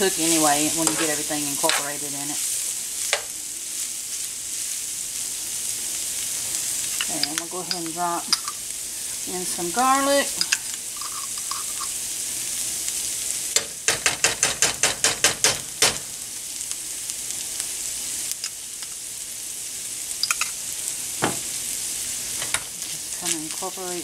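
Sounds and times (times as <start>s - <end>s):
meat sizzling in a skillet: 0.0s - 24.0s.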